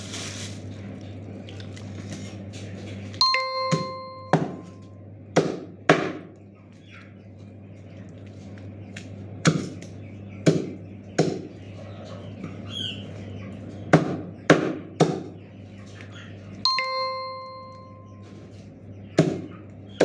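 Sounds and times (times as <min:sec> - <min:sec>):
low hum: 0:00.0 - 0:11.0, 0:15.5 - 0:20.0.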